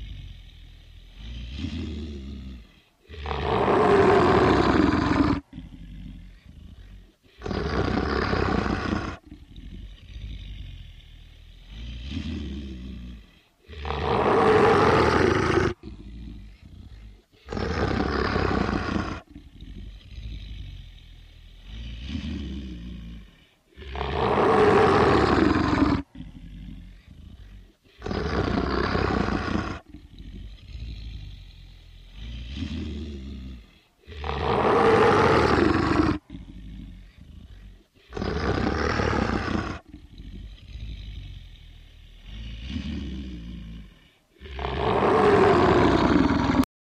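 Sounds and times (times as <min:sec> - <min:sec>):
quieter low growling: 0:00.0 - 0:46.7
loud monster growls: 0:03.1 - 0:05.6, 0:13.7 - 0:16.0, 0:23.8 - 0:26.2, 0:34.1 - 0:36.8, 0:38.1 - 0:41.1, 0:44.4 - 0:46.7.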